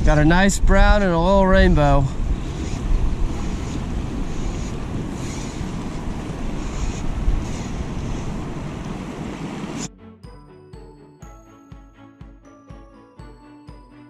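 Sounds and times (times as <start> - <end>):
wind buffeting microphone: 0.0 - 9.9
river water rushing: 2.2 - 9.9.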